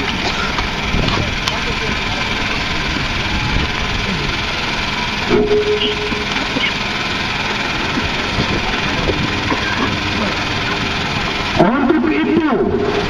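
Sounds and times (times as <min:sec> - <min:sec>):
rally crowd noise: 0:00.0 - 0:13.0
vehicle engine running: 0:00.0 - 0:13.0
short steady tone: 0:05.3 - 0:06.8.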